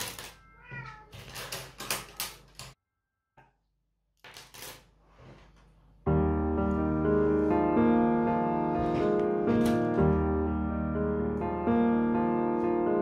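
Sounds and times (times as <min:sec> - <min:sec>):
piano music: 0:06.0 - 0:13.0.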